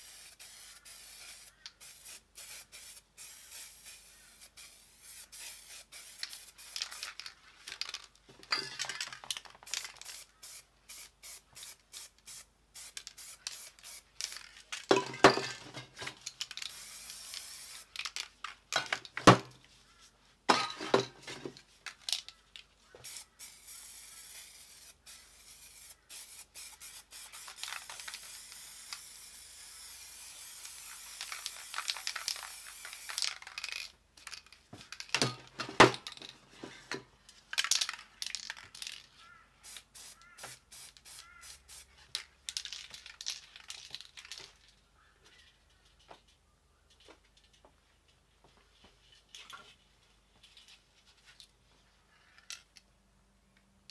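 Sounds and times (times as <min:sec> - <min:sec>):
spray paint can hissing: 0:00.0 - 0:08.0, 0:09.3 - 0:14.5, 0:16.4 - 0:18.3, 0:23.0 - 0:35.1, 0:39.6 - 0:41.9.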